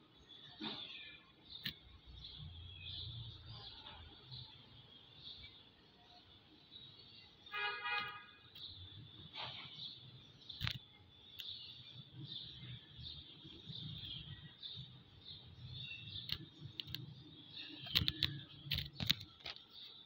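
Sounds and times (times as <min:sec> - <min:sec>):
birds chirping: 0:00.0 - 0:20.0
sharp clicks: 0:16.1 - 0:20.0.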